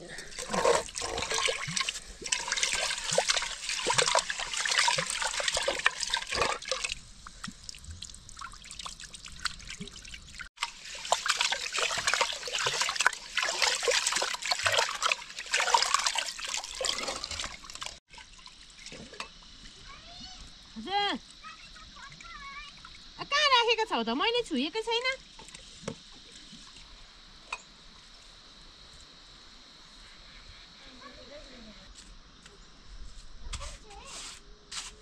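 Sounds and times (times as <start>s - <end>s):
water trickling and splashing: 0.0s - 23.8s
small clicks and drips: 21.2s - 23.1s.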